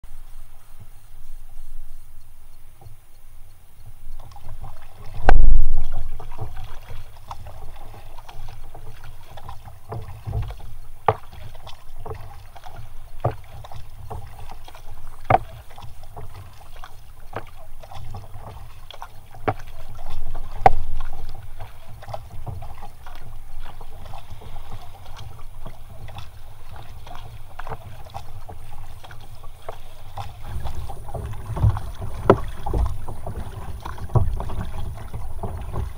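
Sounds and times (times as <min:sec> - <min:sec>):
wind rumble on microphone: 0:00.1 - 0:07.9, 0:19.5 - 0:28.0, 0:29.8 - 0:35.9
paddle splashing water: 0:00.1 - 0:35.9.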